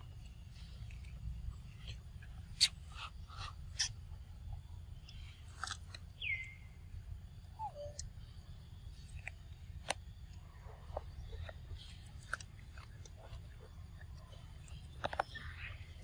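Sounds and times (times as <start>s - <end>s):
monkeys crunching food: 0.0s - 6.6s, 8.9s - 16.0s
steady low rumble: 0.0s - 16.0s
short squeaky calls: 7.5s - 8.3s.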